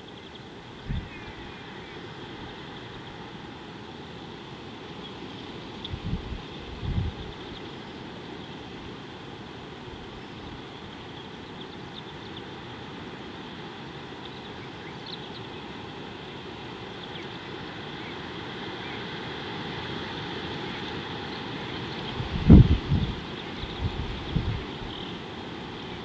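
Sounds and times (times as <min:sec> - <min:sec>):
faint high hum: 0:00.0 - 0:26.0
wind rumbling on microphone: 0:00.8 - 0:01.5, 0:05.8 - 0:07.6, 0:22.0 - 0:25.1
wind gust buffeting microphone: 0:22.1 - 0:25.0.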